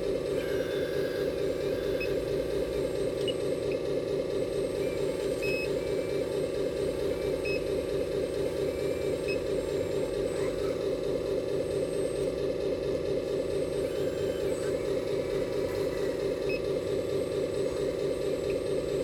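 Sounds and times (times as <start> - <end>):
hydraulic pump pulsing hum: 0.0 - 19.0.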